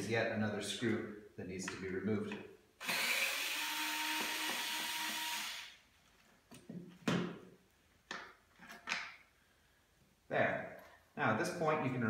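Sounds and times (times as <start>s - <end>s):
cordless drill whirring: 2.8s - 5.8s.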